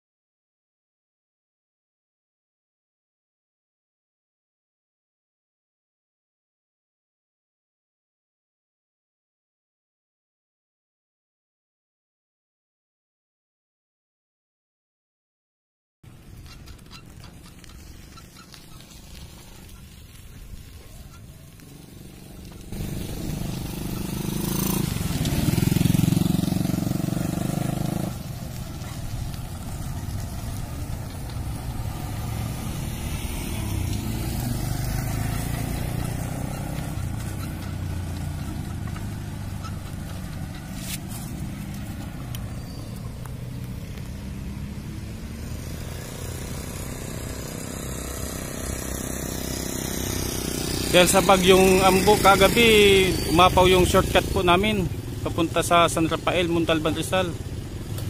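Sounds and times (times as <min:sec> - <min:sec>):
vehicle engine and road noise: 0:16.0 - 0:58.0.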